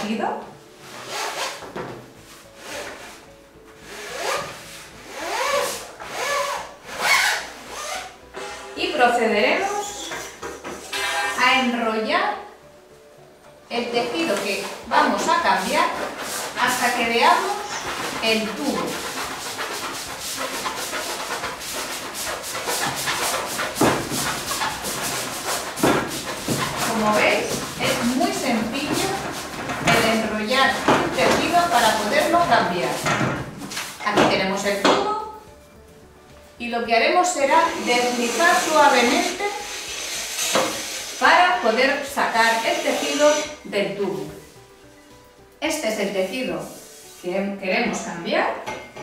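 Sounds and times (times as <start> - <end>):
soft background music: 0.0 - 49.0
bar scraping through fabric: 0.8 - 8.8, 13.8 - 35.0, 37.3 - 44.7.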